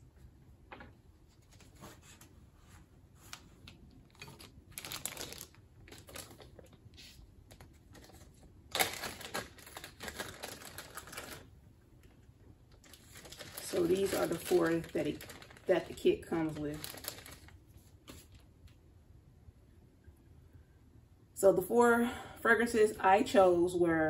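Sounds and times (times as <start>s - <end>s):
plastic bag rustling and crinkling: 3.2s - 11.5s, 12.7s - 18.5s.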